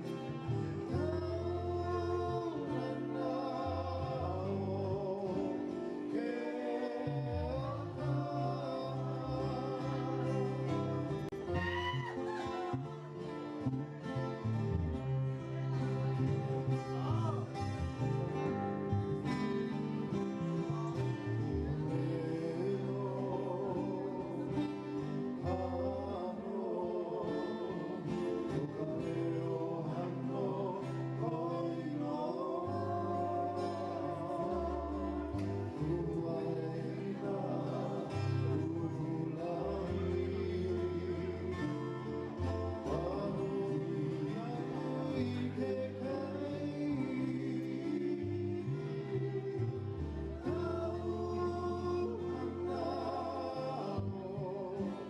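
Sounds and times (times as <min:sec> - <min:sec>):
people singing: 0:00.0 - 0:55.0
strummed guitar: 0:00.0 - 0:55.0
bass line: 0:07.0 - 0:24.5.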